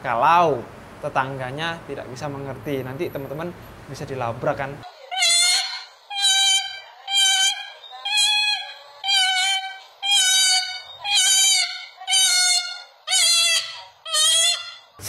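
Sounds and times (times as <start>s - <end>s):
cockatoo screaming: 5.1s - 15.0s.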